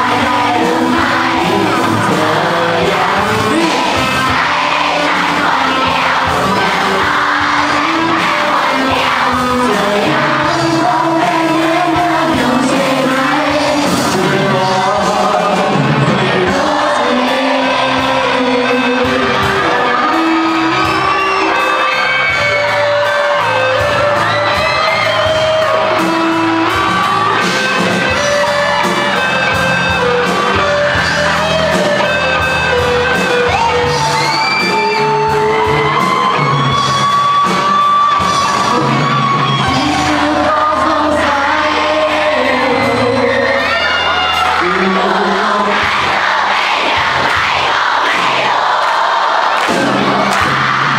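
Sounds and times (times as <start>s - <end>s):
male singer: 0.0s - 5.9s, 6.6s - 21.5s, 39.6s - 46.1s
electric guitar: 0.0s - 45.2s
bass guitar: 0.0s - 48.3s
drum kit: 0.0s - 50.9s.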